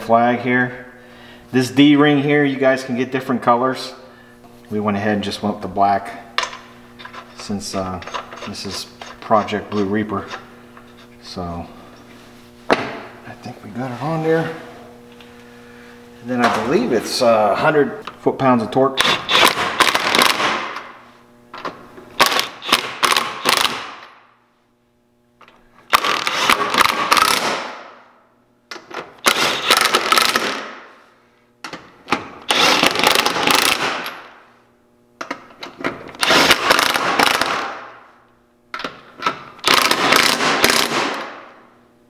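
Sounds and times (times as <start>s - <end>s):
impact wrench hammering: 19.0s - 20.9s, 22.2s - 24.2s, 25.9s - 27.9s, 28.7s - 30.8s, 31.7s - 34.3s, 35.2s - 37.9s, 38.7s - 41.4s.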